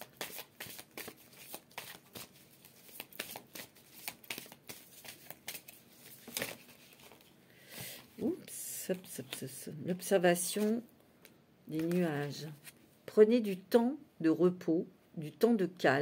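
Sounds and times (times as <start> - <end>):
cards being shuffled: 0.0 - 7.3, 11.7 - 12.8.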